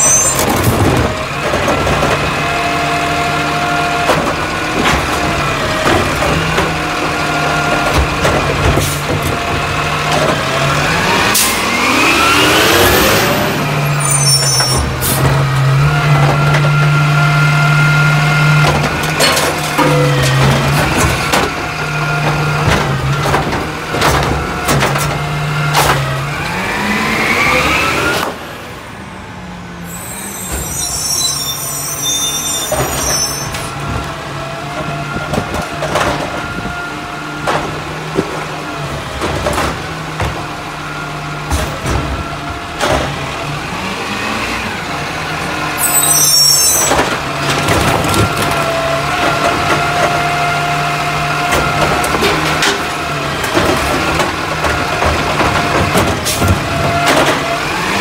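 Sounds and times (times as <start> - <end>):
hydraulic whine: 0.0 - 1.0, 45.6 - 48.7
garbage truck engine: 0.0 - 58.0
clanks of cart tipping: 18.6 - 21.6.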